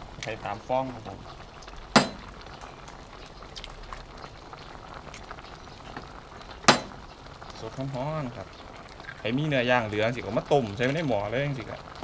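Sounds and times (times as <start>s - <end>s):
pot of soup boiling: 0.0s - 12.0s.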